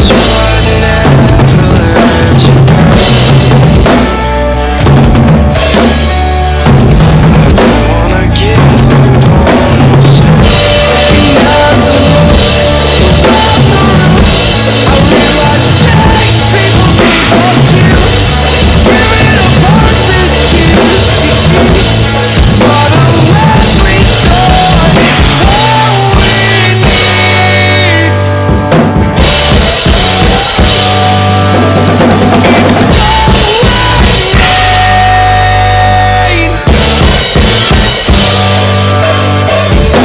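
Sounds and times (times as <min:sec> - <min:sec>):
drum kit playing: 0:00.0 - 0:40.0
recorded rock song: 0:00.0 - 0:40.0.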